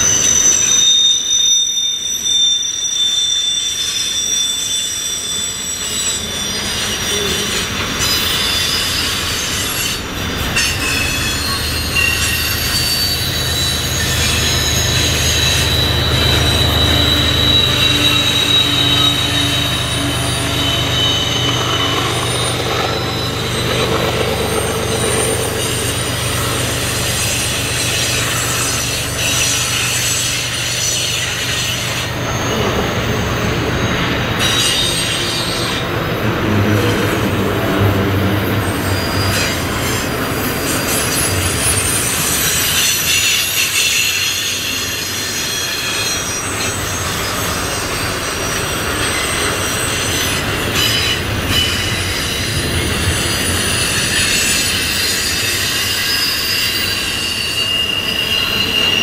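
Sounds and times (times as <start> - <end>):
diesel locomotive engine droning: 0.0 - 59.0
high wheel squeal: 0.0 - 59.0
freight cars rumbling: 6.8 - 43.0.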